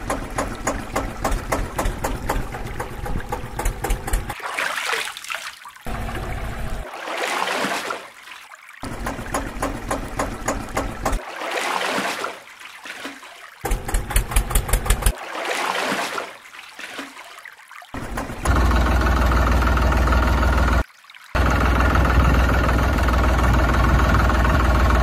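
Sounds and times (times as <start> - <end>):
tractor engine chugging: 0.0 - 4.4, 13.7 - 15.1, 18.0 - 20.8, 21.4 - 25.0
water splashing and sloshing: 0.0 - 25.0.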